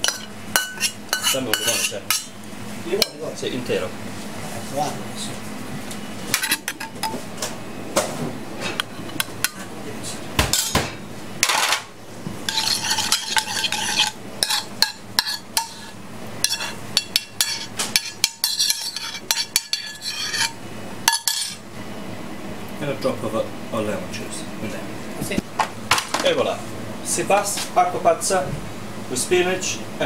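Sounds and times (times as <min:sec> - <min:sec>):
metal spoon scraping frying pan: 0:00.0 - 0:02.3, 0:12.4 - 0:21.6.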